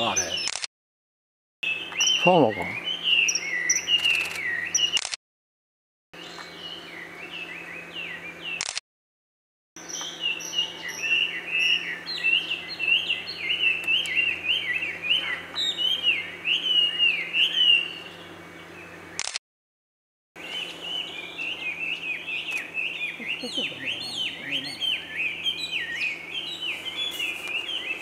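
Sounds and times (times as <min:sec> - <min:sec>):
kingfishers calling: 0:20.4 - 0:28.0.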